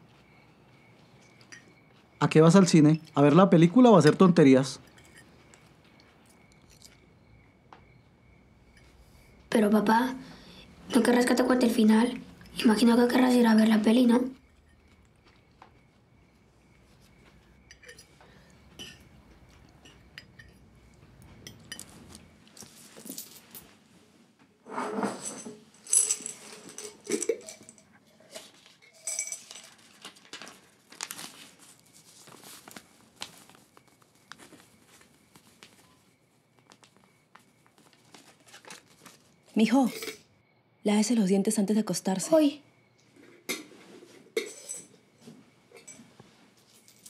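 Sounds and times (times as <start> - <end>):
low room hum: 0.0 - 47.0
cutlery clinking on plates: 1.3 - 1.8, 17.7 - 20.6, 43.5 - 45.0
coins rattling in glass jar: 25.2 - 27.9, 28.9 - 30.0.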